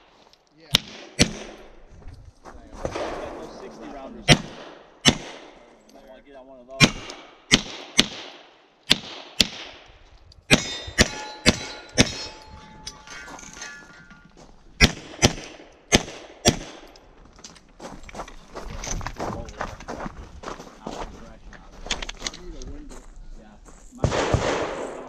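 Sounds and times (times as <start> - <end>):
pistol shots: 0.7 - 1.7, 4.2 - 5.6, 6.8 - 9.8, 10.5 - 12.4, 14.8 - 17.0, 24.0 - 25.0
steel targets clanging: 10.5 - 14.4.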